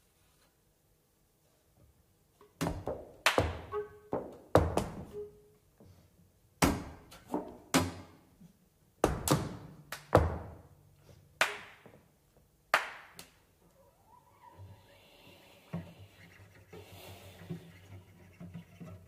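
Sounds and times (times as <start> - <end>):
sharp hand claps: 9.2 - 10.2, 11.4 - 11.9, 12.7 - 13.4.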